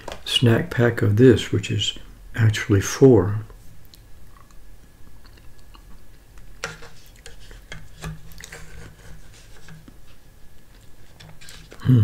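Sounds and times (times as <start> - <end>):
quiet mouth eating noises: 3.5 - 6.2.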